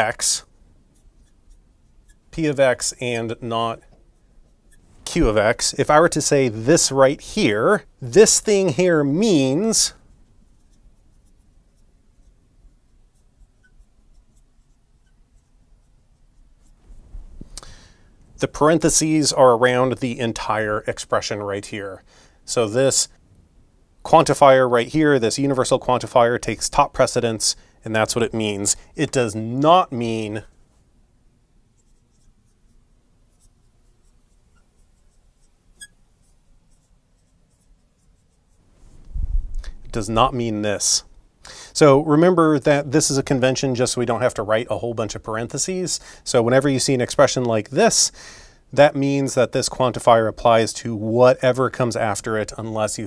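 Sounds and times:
marker scratching on glass: 0:00.2 - 0:05.8, 0:09.2 - 0:16.8, 0:31.8 - 0:38.7.

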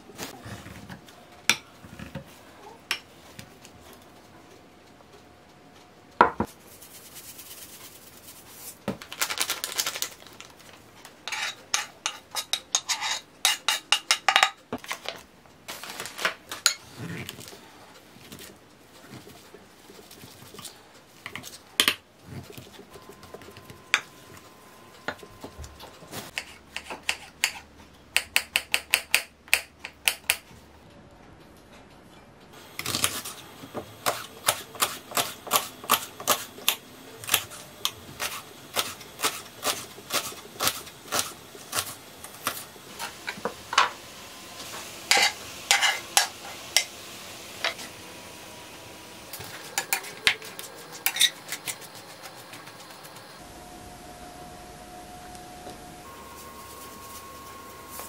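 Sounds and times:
fork scraping a glass bowl: 0:11.3 - 0:13.8.

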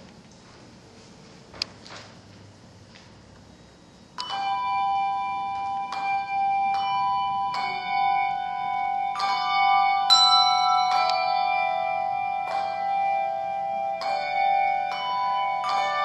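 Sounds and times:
handbell choir chords: 0:04.2 - 0:16.0.

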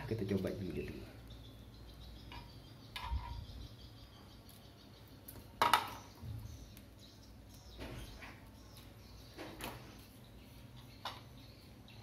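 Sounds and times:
handling knocks of parts: 0:05.3 - 0:06.2.

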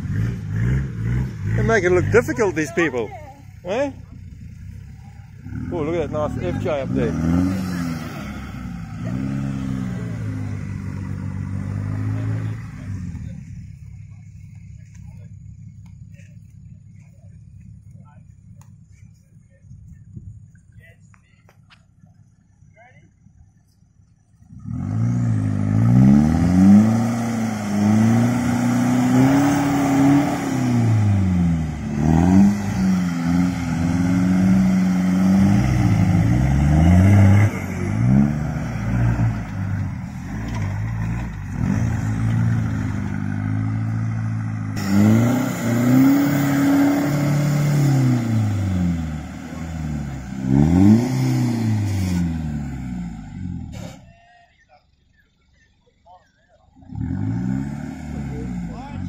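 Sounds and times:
engines revving hard: 0:00.0 - 0:04.0, 0:05.4 - 0:13.6, 0:24.5 - 0:54.0, 0:56.8 - 0:59.0.

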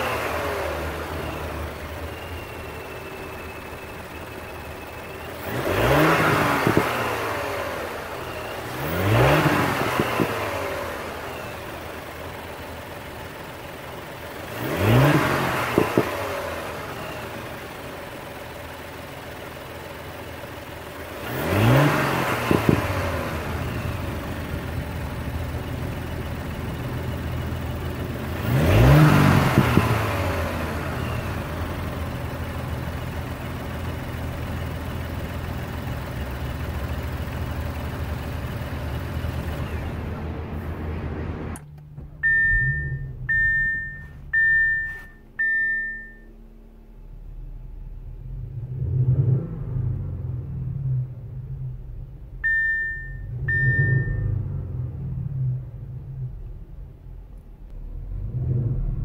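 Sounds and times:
car engine idling and revving: 0:00.0 - 0:59.0
exhaust cracks: 0:05.4 - 0:07.2, 0:27.7 - 0:32.1.

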